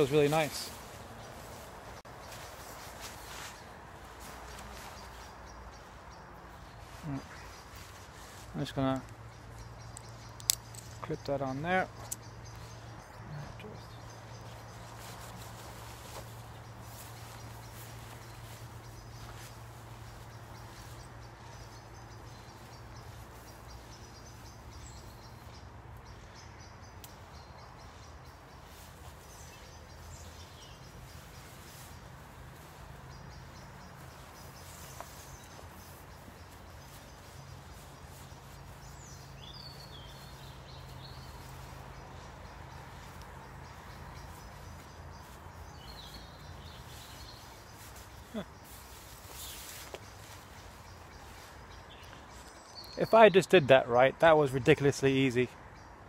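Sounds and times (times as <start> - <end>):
woodland background noise: 0.0 - 56.0
faint bird calls: 11.6 - 53.0.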